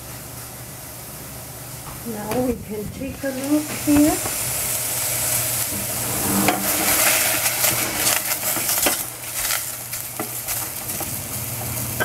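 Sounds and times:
vegetables sizzling in oil: 0.1s - 12.0s
wooden spoon scraping a pan: 5.1s - 11.2s.

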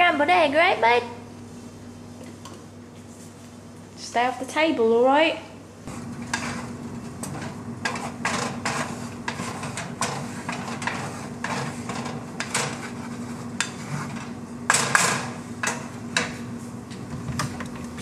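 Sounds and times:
steady low hum: 0.0s - 18.0s
wooden spatula scraping frying pan: 5.9s - 15.0s.

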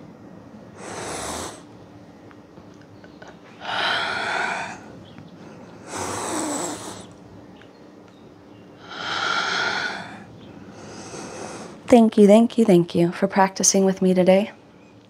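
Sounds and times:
woman breathing deeply: 0.8s - 1.7s, 3.6s - 7.2s, 8.8s - 11.9s.

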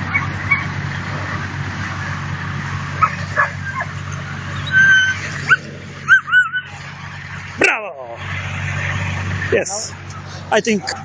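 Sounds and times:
puppies yipping: 0.0s - 1.5s, 2.9s - 6.9s
puppy whining: 4.5s - 6.7s.

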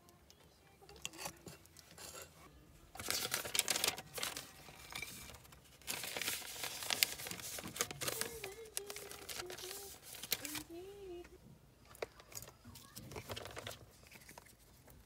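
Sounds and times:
paper crinkling and rustling: 2.9s - 10.9s, 11.9s - 15.0s.

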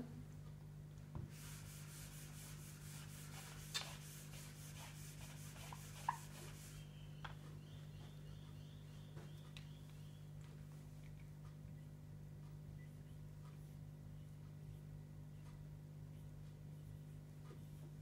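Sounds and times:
eraser rubbing on whiteboard: 1.3s - 6.8s.

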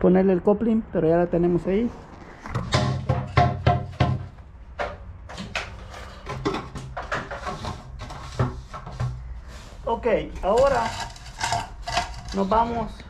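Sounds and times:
plastic pipe knocking on concrete: 2.6s - 5.0s.

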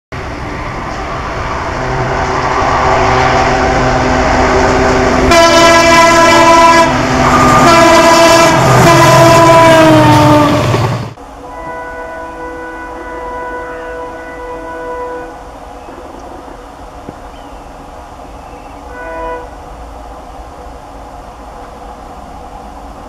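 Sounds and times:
locomotive horn blasts: 5.3s - 10.6s, 11.4s - 15.4s, 18.8s - 19.6s.

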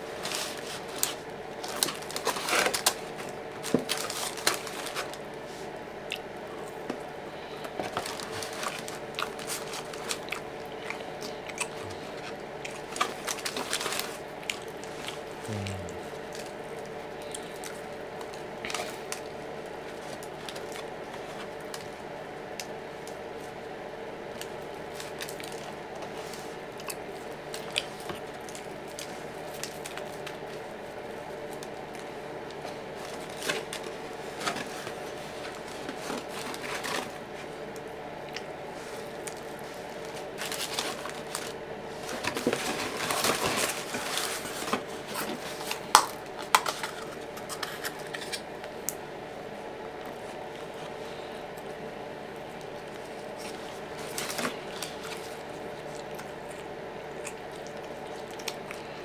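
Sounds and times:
food packaging crinkling: 0.0s - 15.4s, 24.2s - 48.8s, 52.4s - 59.0s
steady hum: 0.0s - 59.0s
chewing and wet mouth noises: 4.6s - 6.8s, 8.6s - 23.6s, 24.3s - 33.8s, 37.6s - 40.4s, 49.9s - 59.0s.

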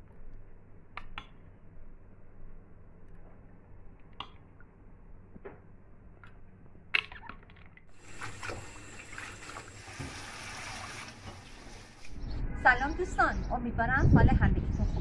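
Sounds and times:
water splashing in a metal bowl: 7.9s - 11.9s.

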